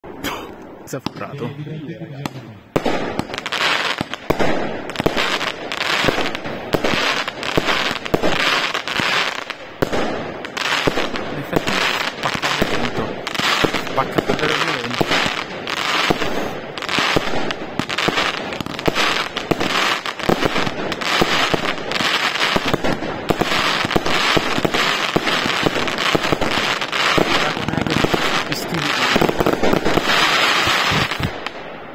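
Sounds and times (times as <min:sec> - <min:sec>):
crackling firework stars: 0:02.2 - 0:31.9
firework cake bangs: 0:02.7 - 0:31.5.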